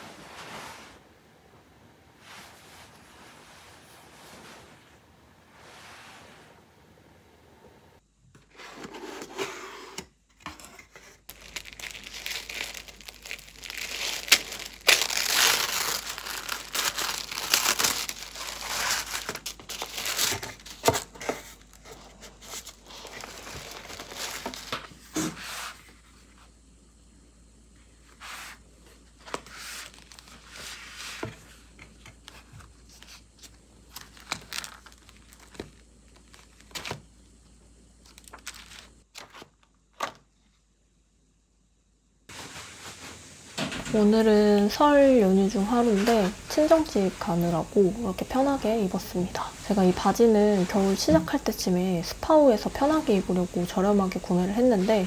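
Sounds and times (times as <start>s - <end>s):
tissue paper crinkling: 11.3s - 25.0s, 29.2s - 31.3s, 32.3s - 37.0s, 38.1s - 39.4s.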